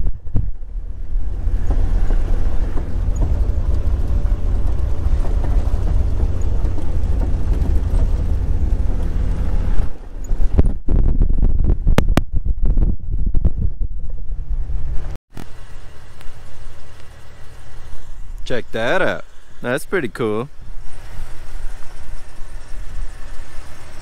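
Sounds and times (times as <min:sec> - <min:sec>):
wind buffeting microphone: 0:00.0 - 0:15.2
car engine and road rumble: 0:00.0 - 0:24.0.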